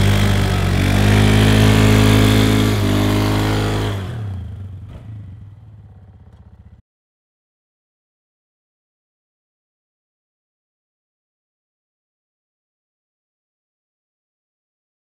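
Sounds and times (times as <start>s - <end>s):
quad engine revving: 0.0s - 6.8s.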